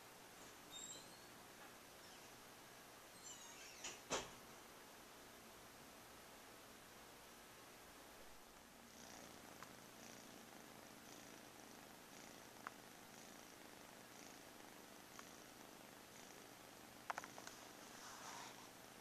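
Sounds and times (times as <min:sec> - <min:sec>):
cat purring: 0:08.8 - 0:19.0
small clicks: 0:17.1 - 0:17.6.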